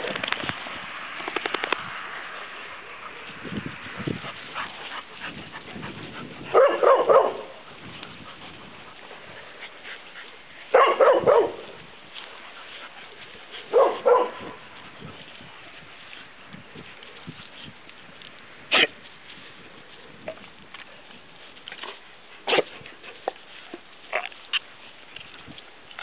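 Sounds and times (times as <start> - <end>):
dog play barking: 6.4 - 7.6, 10.7 - 11.8, 13.7 - 14.6.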